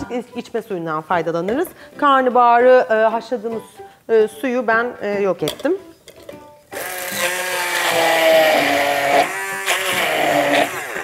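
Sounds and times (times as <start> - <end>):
stick blender running in plastic beaker: 6.8 - 10.8.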